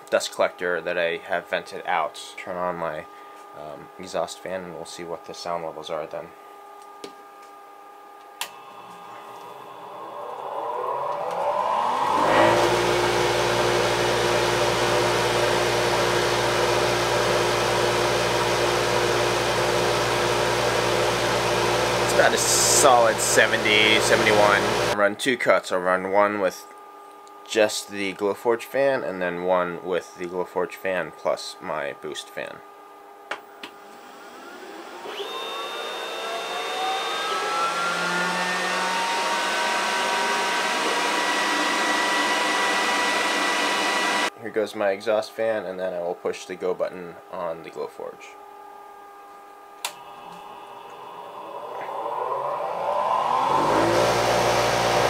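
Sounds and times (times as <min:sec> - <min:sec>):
fans spinning up: 0:08.2 - 0:25.0, 0:33.3 - 0:44.3, 0:49.7 - 0:55.0
motor hum: 0:08.3 - 0:25.0, 0:49.4 - 0:55.0
rush of air: 0:08.6 - 0:13.8, 0:50.0 - 0:55.0.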